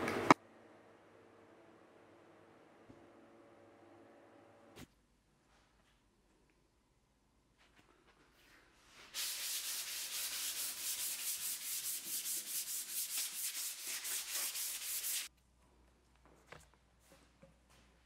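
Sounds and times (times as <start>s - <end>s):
hand sanding wood: 9.2s - 15.3s.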